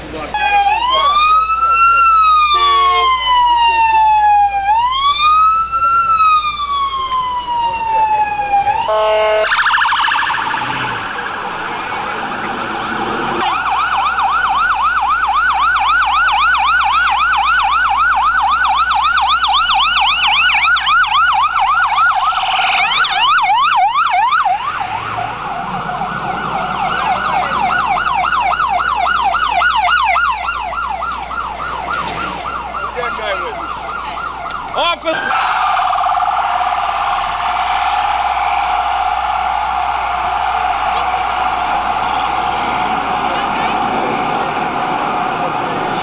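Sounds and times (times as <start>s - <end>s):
ambulance sirens yelping: 0.0s - 46.0s
steady siren blast: 0.0s - 46.0s.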